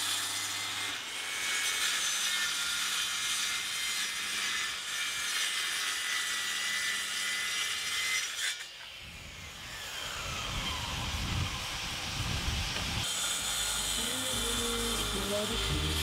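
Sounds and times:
circular saw cutting plywood: 0.0s - 16.0s
saw blade spinning down whine: 9.0s - 16.0s.

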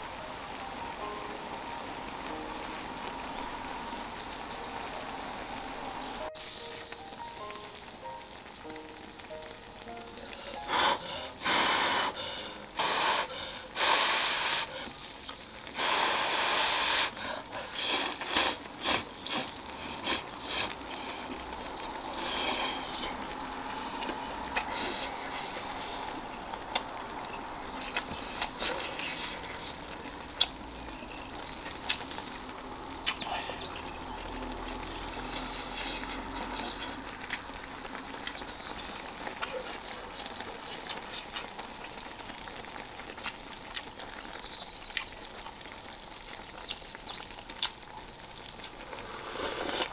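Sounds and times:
broth simmering: 0.0s - 49.9s
birds chirping: 2.0s - 8.2s, 14.4s - 15.7s, 18.4s - 20.5s, 21.2s - 42.6s, 44.1s - 47.9s
person slurping noodles: 15.8s - 21.4s, 22.1s - 22.9s, 48.9s - 49.9s.

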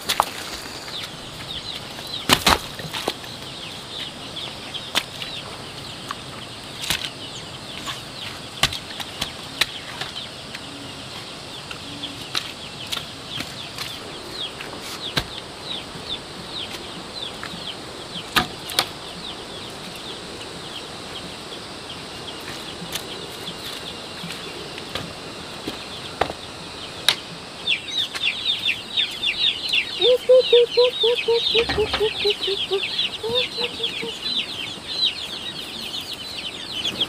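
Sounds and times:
high bird chirps: 27.9s - 37.0s.

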